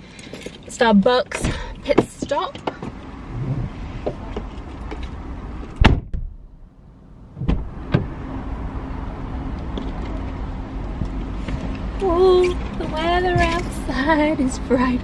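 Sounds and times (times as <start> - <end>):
steady low hum: 3.1 - 4.0
car door slamming: 5.8 - 6.4, 7.4 - 8.2.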